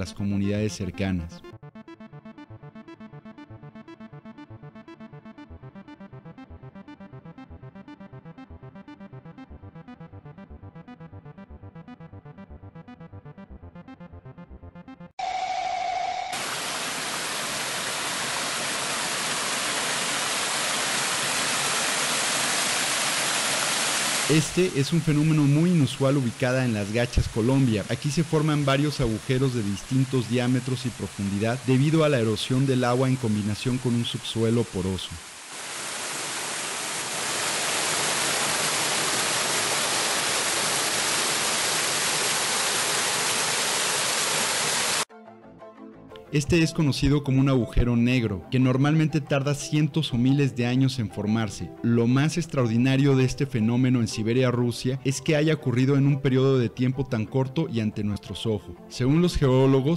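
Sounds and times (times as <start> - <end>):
steady tone with hiss: 15.3 - 24.4, 29.2 - 45.0
river water rushing over rock: 16.4 - 24.4, 35.3 - 45.0.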